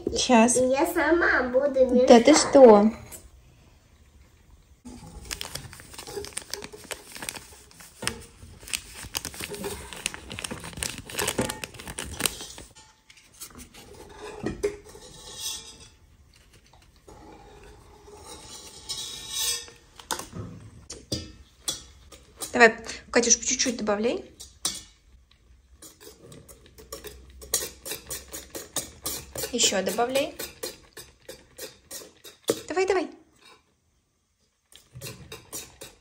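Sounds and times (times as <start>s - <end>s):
paper sachet crinkling: 4.9s - 12.8s
metal scoop scraping in glass jar: 13.4s - 16.0s, 18.0s - 19.8s.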